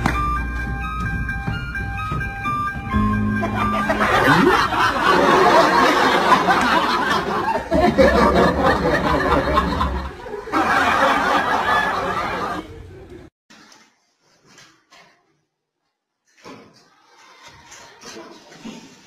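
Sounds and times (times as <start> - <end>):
people laughing: 3.4 - 13.1.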